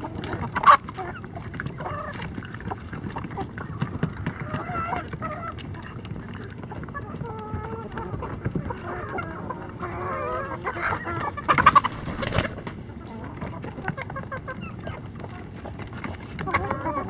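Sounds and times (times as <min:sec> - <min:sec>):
chickens clucking: 0:00.0 - 0:17.0
chicken squawking: 0:07.0 - 0:15.0.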